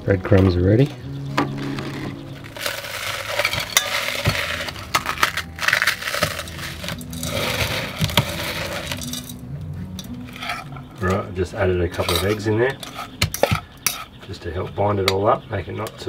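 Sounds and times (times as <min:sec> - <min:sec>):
toasted bread crumbling: 0:02.6 - 0:09.4.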